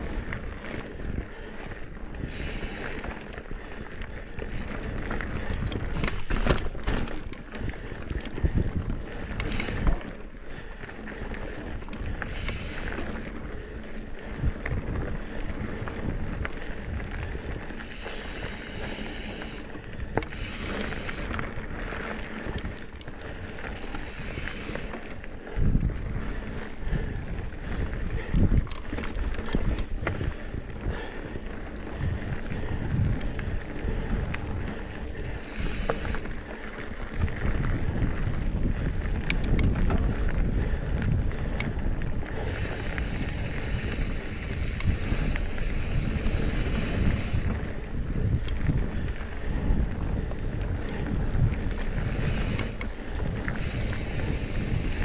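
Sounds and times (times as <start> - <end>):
wind buffeting microphone: 0.0 - 55.0
bike knocks and rattles: 4.5 - 8.7.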